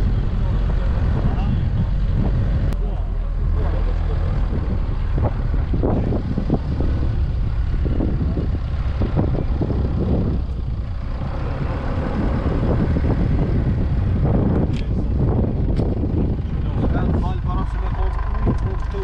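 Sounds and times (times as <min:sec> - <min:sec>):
car engine and tyres rumbling: 0:00.0 - 0:19.0
car thumping over ruts: 0:04.5 - 0:17.2.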